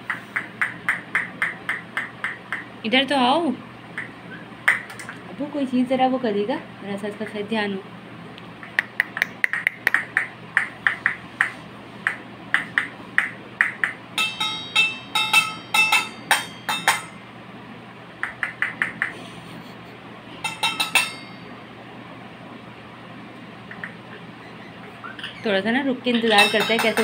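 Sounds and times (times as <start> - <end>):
toy bell ringing: 14.2 - 17.1, 26.2 - 27.0.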